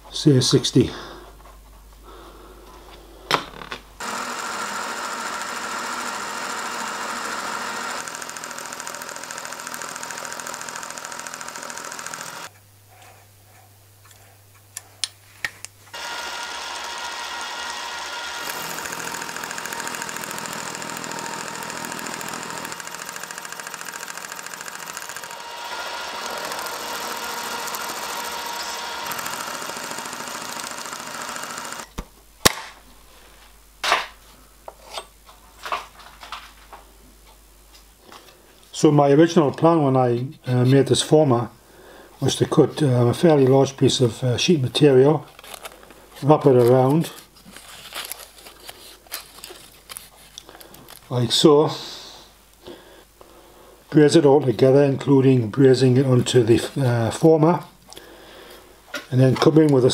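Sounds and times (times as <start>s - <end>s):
milling machine cutting metal: 4.0s - 12.5s, 16.0s - 31.9s.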